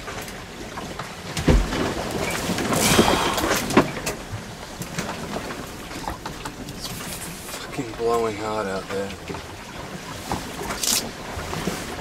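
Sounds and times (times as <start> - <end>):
water rushing against boat hull: 0.0 - 12.0
knocks and rattles in cabin: 1.3 - 2.0.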